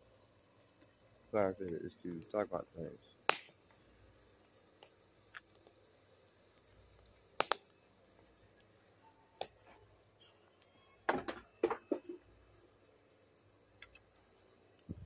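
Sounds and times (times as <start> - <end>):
high insect hiss: 0.0 - 15.0
wood fire crackling and popping: 3.2 - 8.8, 9.4 - 9.9, 10.5 - 12.3.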